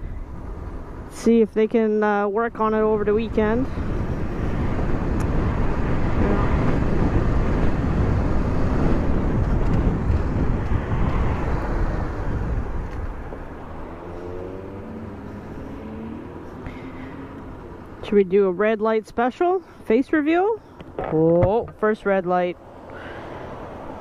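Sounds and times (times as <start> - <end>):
wind rush: 2.8 - 18.0
motorcycle engine roar: 3.1 - 18.0.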